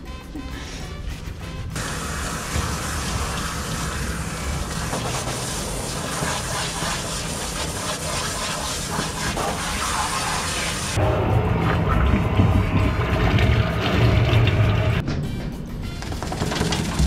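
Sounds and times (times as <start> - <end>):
hose water spraying: 1.8 - 11.0
low loud sound: 11.0 - 15.2.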